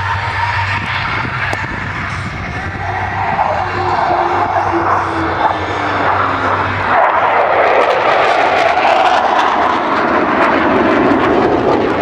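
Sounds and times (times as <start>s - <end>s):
loud jet roar: 0.0s - 12.0s.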